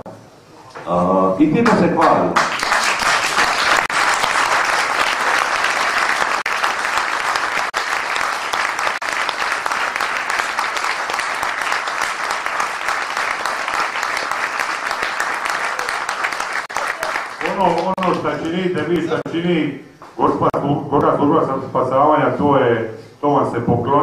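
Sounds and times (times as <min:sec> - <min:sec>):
audience applauding: 0:01.6 - 0:19.3.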